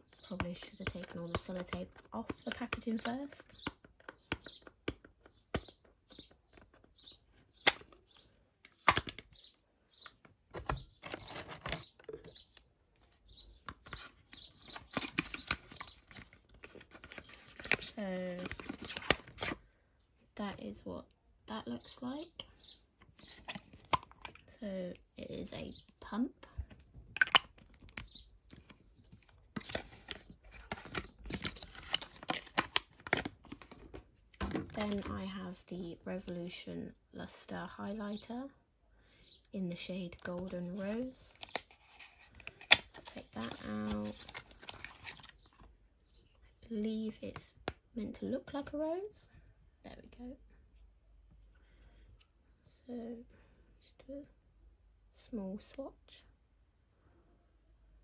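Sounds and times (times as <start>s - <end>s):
packaging rustling and snapping: 10.5s - 12.6s, 13.6s - 19.6s, 26.7s - 35.1s, 40.1s - 45.7s.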